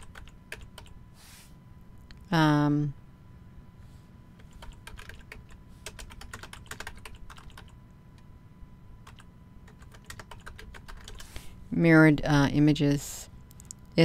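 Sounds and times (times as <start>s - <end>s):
keyboard typing: 0.0s - 1.0s, 4.4s - 7.8s, 9.0s - 11.3s.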